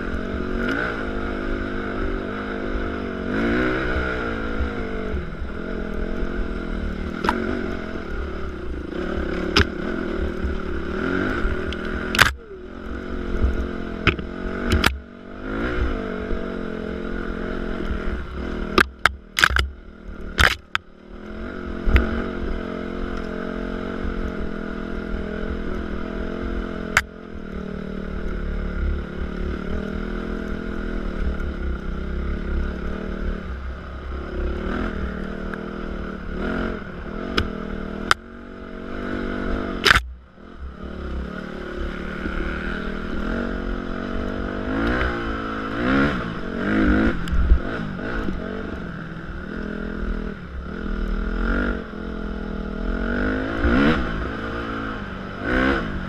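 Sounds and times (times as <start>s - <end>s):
dirt bike engine revving: 0.0s - 27.2s, 27.8s - 56.0s
sharp knocks and cracks: 11.7s - 12.4s, 14.0s - 15.0s, 18.8s - 19.8s, 20.4s - 20.9s, 39.8s - 40.1s.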